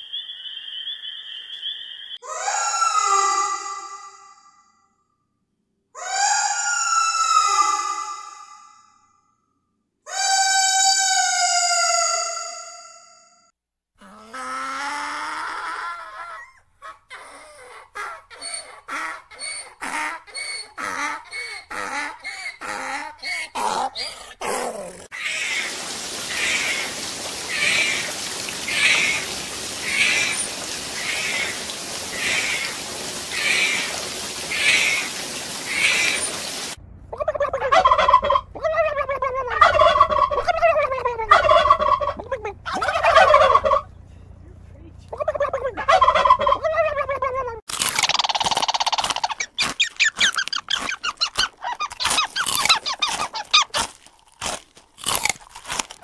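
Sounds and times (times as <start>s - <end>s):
underwater hiss: 25.2s - 36.8s
turkeys gobbling: 25.2s - 44.0s, 45.2s - 47.3s, 48.1s - 53.8s
donkey braying: 37.1s - 44.1s.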